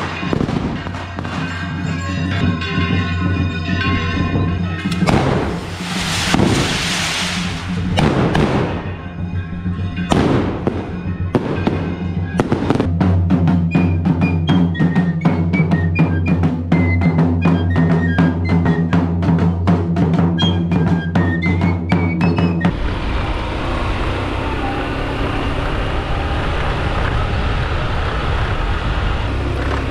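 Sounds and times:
fireworks banging: 0:00.0 - 0:13.0
large drum beats: 0:00.0 - 0:22.9
high-pitched flute melody: 0:13.6 - 0:19.3, 0:20.3 - 0:22.8.

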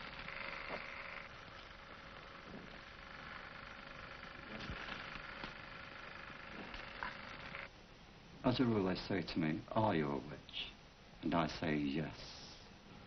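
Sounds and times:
soft crackles: 0:00.0 - 0:07.7
low hum: 0:00.0 - 0:08.4
film soundtrack hiss: 0:00.0 - 0:13.0.

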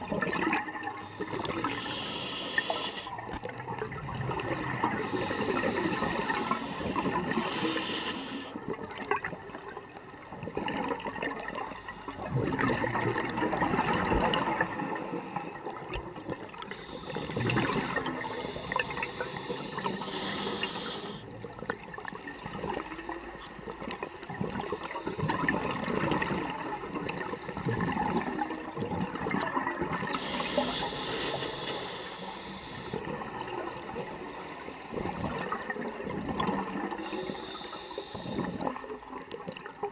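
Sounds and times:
regulator hissing inhalations: 0:01.1 - 0:03.1, 0:05.0 - 0:08.6, 0:16.7 - 0:21.2, 0:30.1 - 0:33.1, 0:37.0 - 0:38.7.

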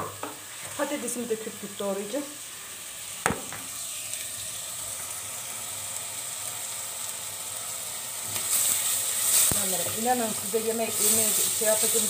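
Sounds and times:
meat and vegetables sizzling: 0:00.0 - 0:12.0
sharp knock: 0:03.2 - 0:03.7.

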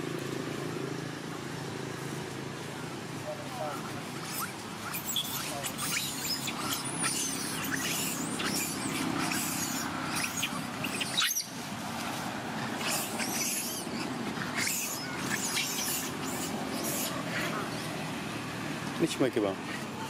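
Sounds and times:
monkeys squeaking and squealing: 0:03.8 - 0:11.8, 0:12.5 - 0:18.5.

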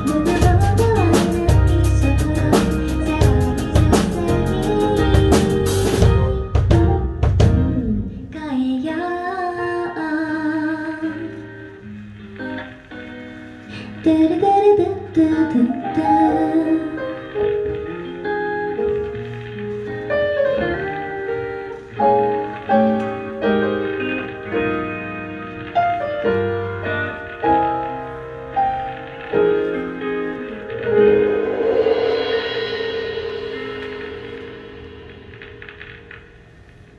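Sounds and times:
woman singing: 0:00.0 - 0:05.3, 0:07.5 - 0:11.7, 0:13.9 - 0:17.4
band with drums and guitar: 0:00.0 - 0:36.9.

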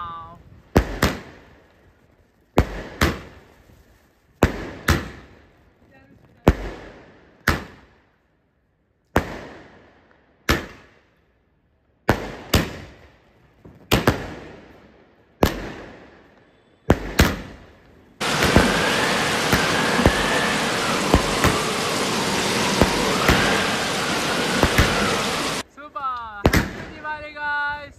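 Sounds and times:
dense firework crackle: 0:00.0 - 0:27.9
firework bangs with echo: 0:00.6 - 0:01.6, 0:02.5 - 0:03.6, 0:04.4 - 0:05.6, 0:06.2 - 0:08.1, 0:09.1 - 0:11.1, 0:12.0 - 0:14.8, 0:15.4 - 0:25.6, 0:26.4 - 0:27.1.

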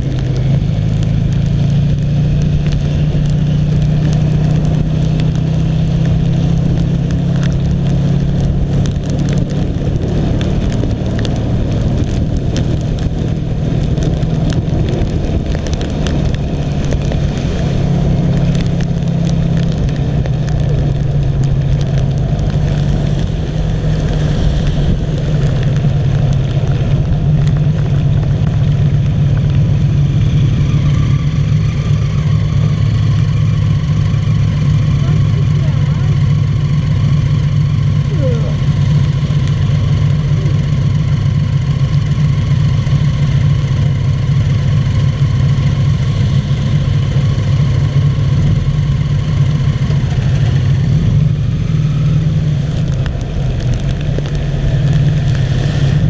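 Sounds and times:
rain: 0:00.0 - 0:56.0
trike engine running: 0:00.0 - 0:56.0
wind noise on microphone: 0:06.0 - 0:31.4.

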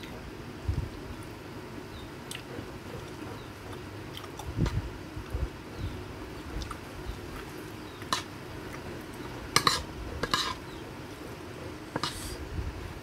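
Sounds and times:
metal spoon scraping a plate: 0:09.5 - 0:10.8, 0:11.9 - 0:12.4.

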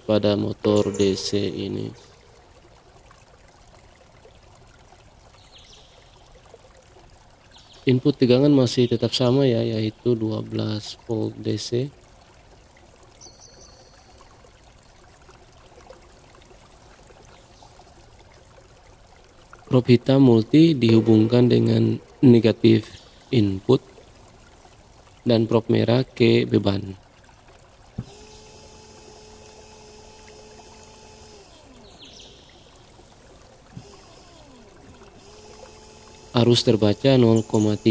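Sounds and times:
small electric motor humming: 0:28.0 - 0:37.9.

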